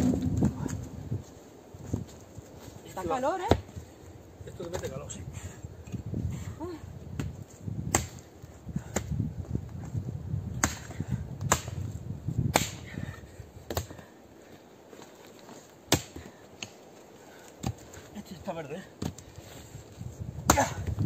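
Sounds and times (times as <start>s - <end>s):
axe chopping branches: 7.9s - 8.2s, 10.6s - 11.8s, 12.5s - 12.9s, 13.7s - 14.0s, 15.9s - 16.8s, 20.5s - 20.9s.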